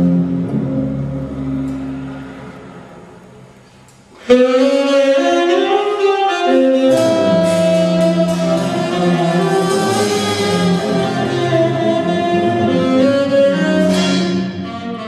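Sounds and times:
bowed bass notes: 0.0 - 15.0
drum and cymbal strikes: 6.5 - 13.0.

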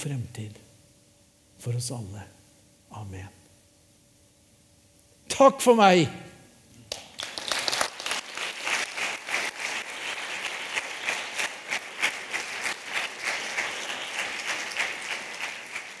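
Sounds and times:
audience applauding: 6.9 - 16.0.

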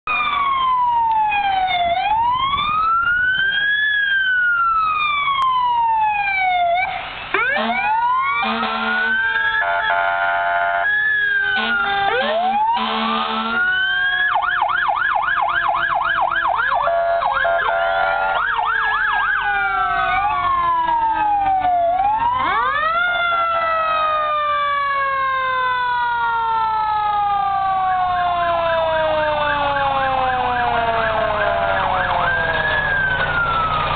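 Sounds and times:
fire truck sirens wailing: 0.0 - 33.9
horn blasts: 7.4 - 14.2, 16.8 - 18.6.

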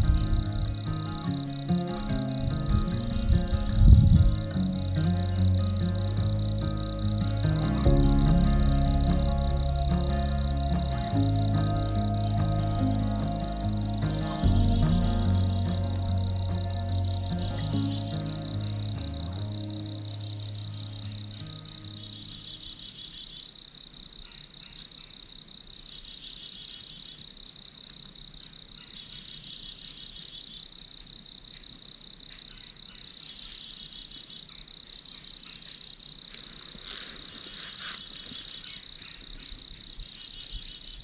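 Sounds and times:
high fast-pulsing insect trill: 0.0 - 23.5
lower insect trill: 0.0 - 41.0
faint ticks: 26.6 - 28.3, 28.9 - 41.0.

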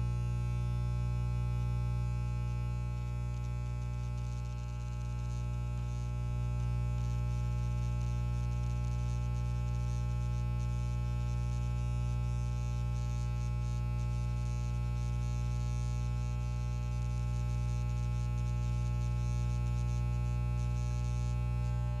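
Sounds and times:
electric hair clipper buzzing: 21.4 - 22.0.

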